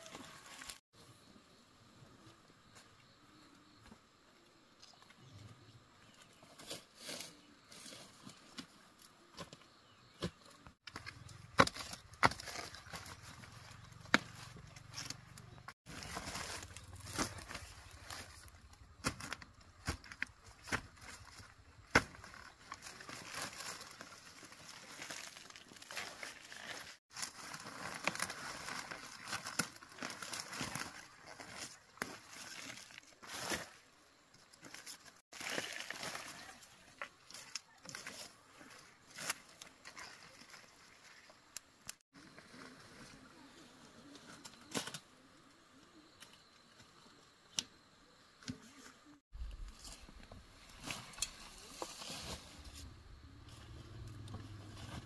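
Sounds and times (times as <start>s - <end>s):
dry leaves rustling: 0.0s - 0.8s, 10.8s - 33.8s, 34.6s - 41.3s, 49.3s - 55.0s.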